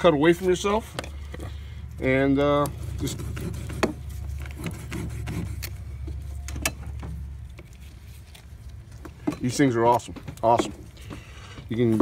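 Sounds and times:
low steady hum: 0.0s - 12.0s
small clicks and scrapes: 2.4s - 11.7s
knife cutting and scraping meat: 2.5s - 6.4s.

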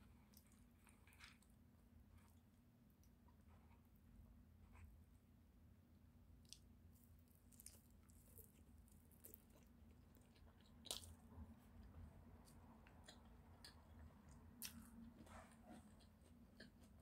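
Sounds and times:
chewing and mouth clicks: 12.4s - 17.0s.

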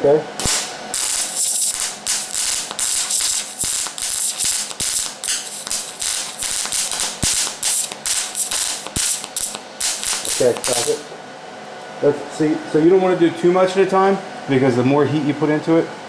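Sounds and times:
welding arc crackling: 0.4s - 11.1s.

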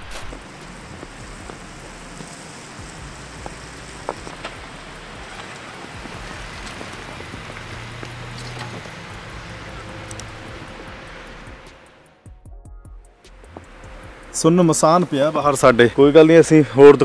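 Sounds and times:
heavy wet snow falling: 0.0s - 11.9s
ticks of flakes striking: 0.0s - 11.9s.

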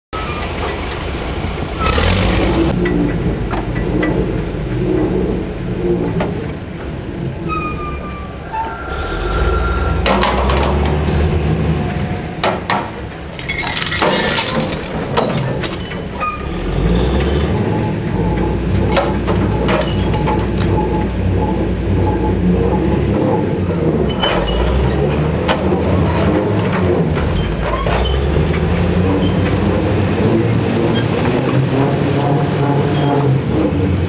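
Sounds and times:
low machine rumble: 0.2s - 12.4s, 13.3s - 34.0s
sharp cracks and clinks: 13.3s - 16.2s
chains scraping and clanking over rock: 13.4s - 21.0s.

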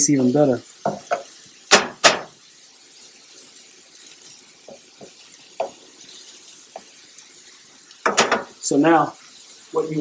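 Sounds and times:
faint sizzle: 0.0s - 10.0s
spoon knocking and scraping pan: 0.8s - 2.4s, 4.6s - 7.0s, 7.9s - 8.6s.

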